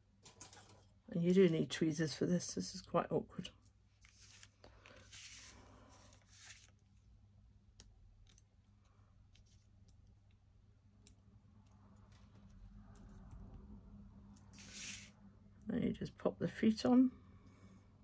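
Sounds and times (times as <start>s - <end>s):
low steady hum: 0.0s - 18.0s
paper scraping: 4.0s - 6.8s, 14.5s - 15.1s.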